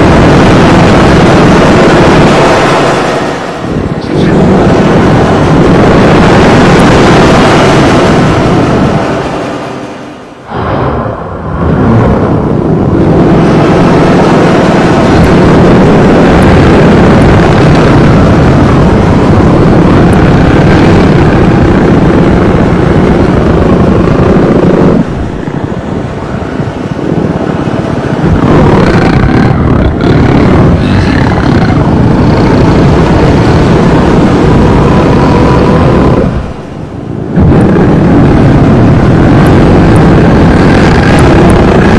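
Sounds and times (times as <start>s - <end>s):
harsh distorted noise music: 28.2s - 36.8s.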